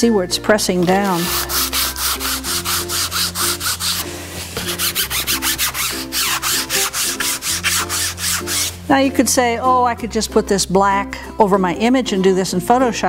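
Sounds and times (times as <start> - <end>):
baren scratching on paper: 0.8 - 4.0.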